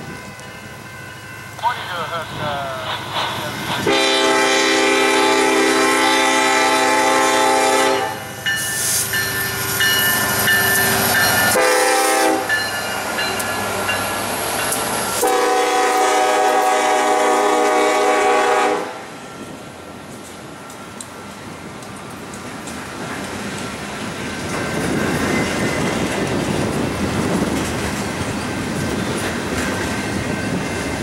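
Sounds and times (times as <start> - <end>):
train wheels rumbling on rails: 0.0 - 31.0
locomotive air horn: 3.8 - 8.2, 11.5 - 12.5, 15.2 - 19.0.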